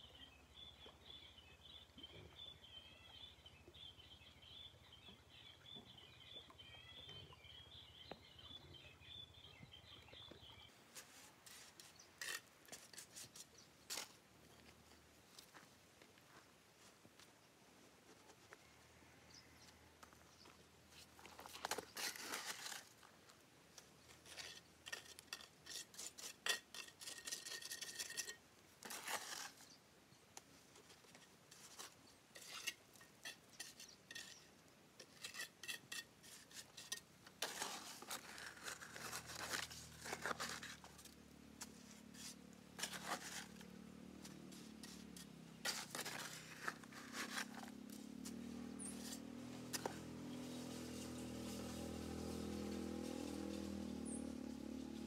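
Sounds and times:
scraping and clinking on hard material: 0:11.1 - 0:14.2, 0:24.1 - 0:29.8, 0:30.8 - 0:53.8.

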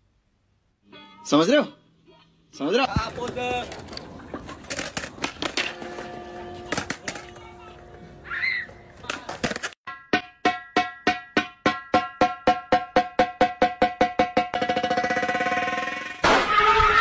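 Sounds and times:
loud noisy crash: 0:16.2 - 0:17.0.

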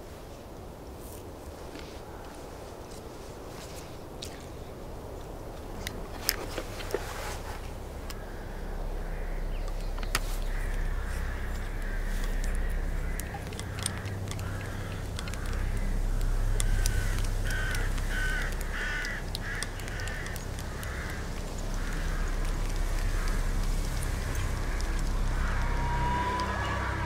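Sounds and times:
low background rumble: 0:00.0 - 0:27.0
crows cawing: 0:07.9 - 0:27.0
flute keys clicking: 0:09.6 - 0:27.0.

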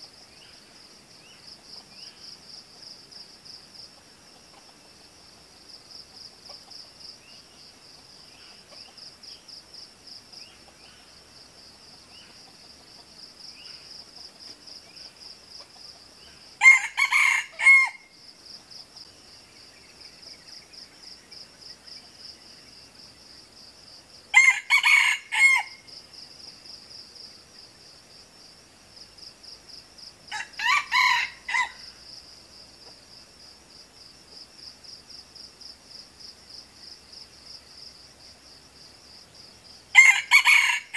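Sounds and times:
rooster crowing: 0:16.6 - 0:18.2, 0:24.3 - 0:25.9, 0:30.3 - 0:32.0, 0:39.9 - 0:40.9.

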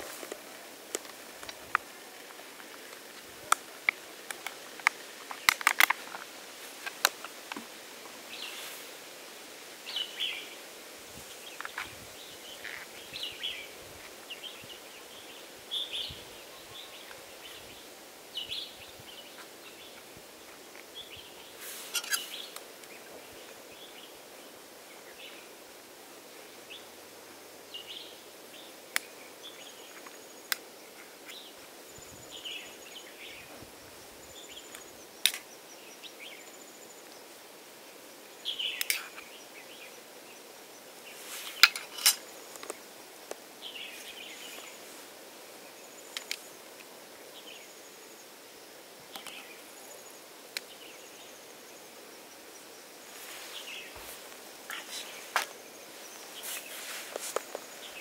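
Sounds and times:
birds chirping: 0:38.4 - 0:42.9, 0:43.6 - 0:45.0, 0:49.1 - 0:58.0.

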